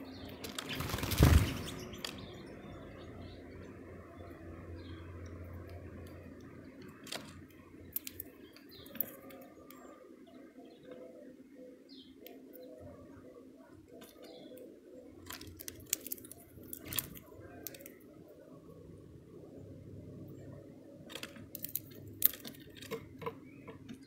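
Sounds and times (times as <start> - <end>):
beaks tapping on seeds: 5.7 - 9.8, 14.0 - 18.0, 21.1 - 24.0.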